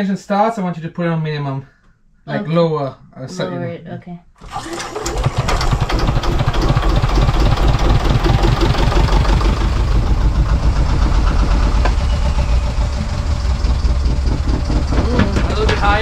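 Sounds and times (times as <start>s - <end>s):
diesel engine idling: 4.4s - 16.0s.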